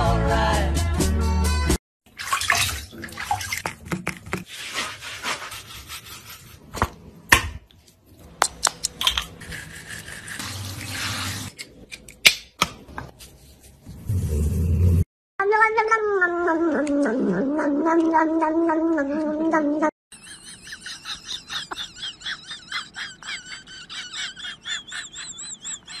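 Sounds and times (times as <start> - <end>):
water splashing: 2.1 - 4.4
sponge rubbing wet fur: 4.2 - 6.7, 9.5 - 11.5.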